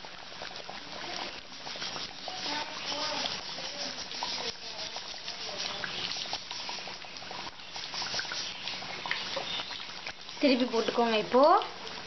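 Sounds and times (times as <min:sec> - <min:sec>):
fritters deep-frying in oil: 0:00.0 - 0:12.0.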